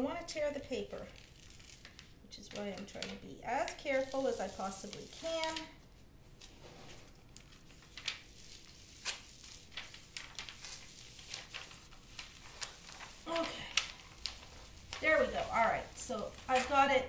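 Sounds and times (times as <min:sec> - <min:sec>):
paper peeling and crinkling: 0:00.4 - 0:17.0.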